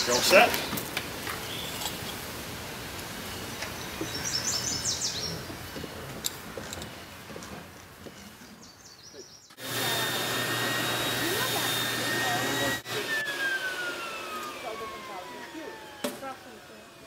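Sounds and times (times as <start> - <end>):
birds chirping: 0.0 - 2.2, 3.0 - 9.6
insulation blowing machine rushing: 9.6 - 17.0.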